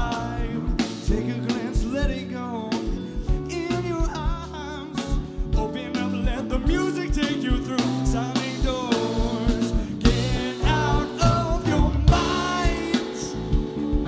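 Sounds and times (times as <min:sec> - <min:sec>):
drums hitting steadily: 0:00.0 - 0:14.0
live band playing: 0:00.0 - 0:14.0
man singing: 0:00.0 - 0:14.0.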